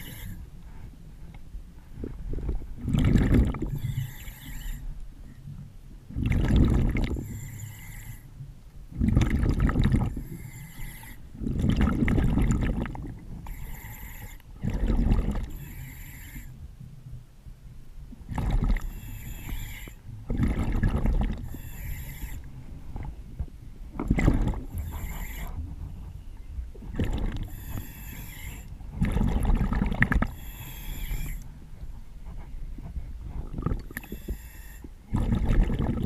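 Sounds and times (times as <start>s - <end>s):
regulator inhale hiss: 0.0s - 1.0s, 3.7s - 5.0s, 7.2s - 8.4s, 10.2s - 11.3s, 13.5s - 14.5s, 15.5s - 16.6s, 18.8s - 20.0s, 21.4s - 22.5s, 24.7s - 25.6s, 27.4s - 28.8s, 30.3s - 31.6s, 34.0s - 35.0s
exhaled bubbles gushing: 2.4s - 3.8s, 6.1s - 7.2s, 8.9s - 10.2s, 11.4s - 13.2s, 14.6s - 15.5s, 18.3s - 18.9s, 20.3s - 21.6s, 24.0s - 25.0s, 26.8s - 27.6s, 29.0s - 30.4s, 33.4s - 34.1s, 35.1s - 36.0s.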